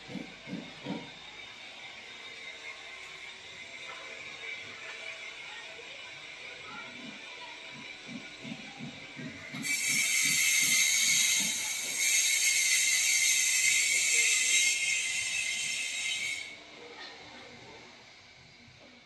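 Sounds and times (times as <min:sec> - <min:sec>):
loud hissing of escaping air: 0:09.6 - 0:16.6.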